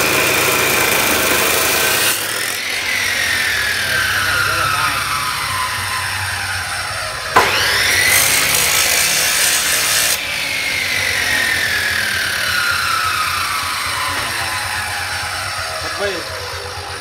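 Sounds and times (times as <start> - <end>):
abrasive disc grinding steel: 0.0 - 6.0
chop saw motor whine: 0.0 - 17.0.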